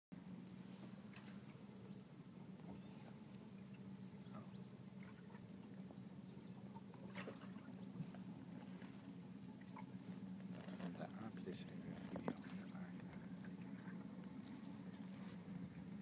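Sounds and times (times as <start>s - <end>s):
boat motor humming: 0.2s - 16.0s
faint chirps: 1.4s - 6.8s.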